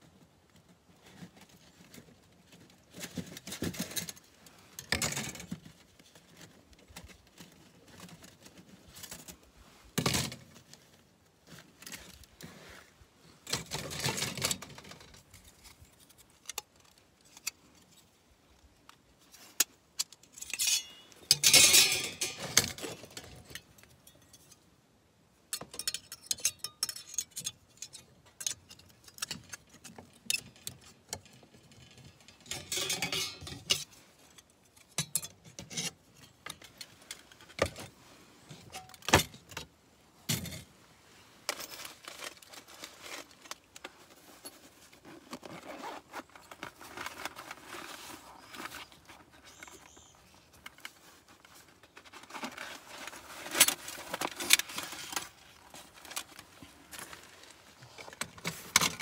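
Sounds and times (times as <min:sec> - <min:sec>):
metal cookware clinking and rattling: 0:20.4 - 0:22.6, 0:32.5 - 0:33.8.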